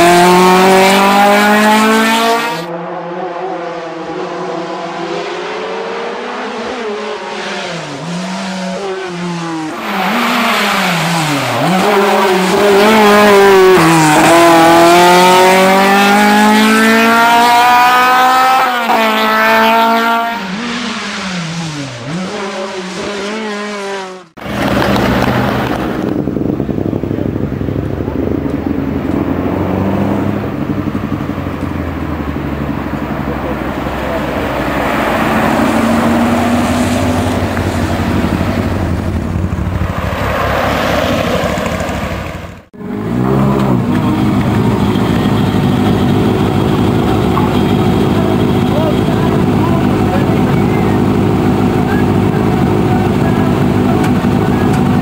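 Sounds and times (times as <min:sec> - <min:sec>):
racing car engine at full throttle: 0:00.0 - 0:55.0.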